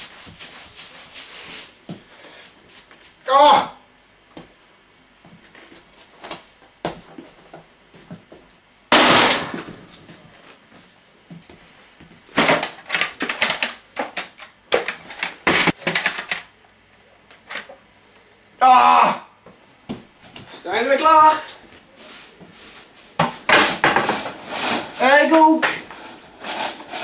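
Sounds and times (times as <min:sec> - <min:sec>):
loud crash: 0:08.9 - 0:09.8
hard objects clattering: 0:23.2 - 0:25.0.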